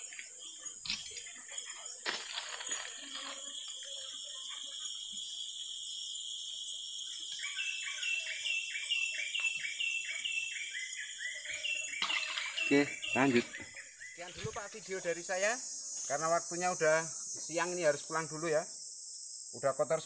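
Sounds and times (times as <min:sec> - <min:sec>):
high-pitched insect drone: 0:00.0 - 0:20.0
repeated chirping call: 0:07.3 - 0:14.8.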